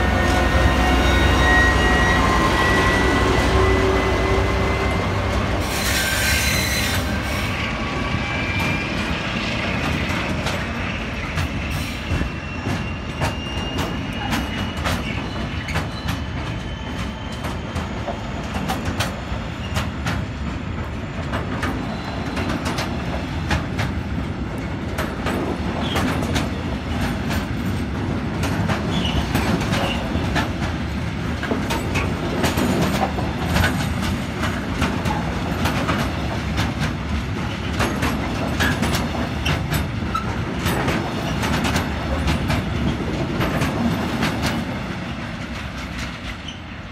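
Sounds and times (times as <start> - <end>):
freight train rolling past: 0.0 - 46.9.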